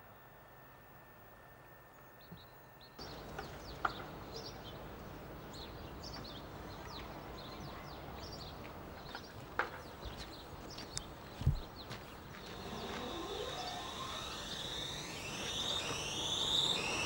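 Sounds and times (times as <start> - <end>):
small birds chirping: 1.9 - 17.0
steady background hiss: 10.5 - 17.0.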